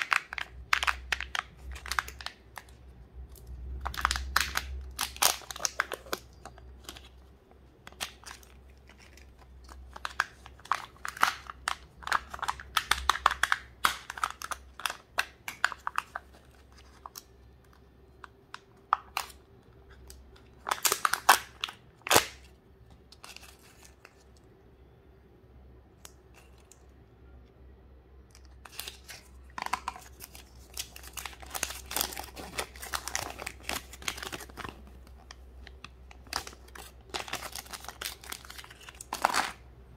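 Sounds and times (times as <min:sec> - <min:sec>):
foil wrapper crinkling: 0:00.0 - 0:07.2, 0:28.6 - 0:39.6.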